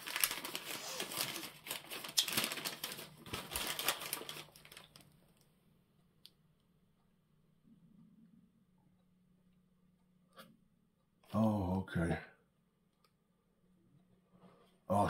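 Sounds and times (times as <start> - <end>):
paper rustling and crinkling: 0.0 - 5.4.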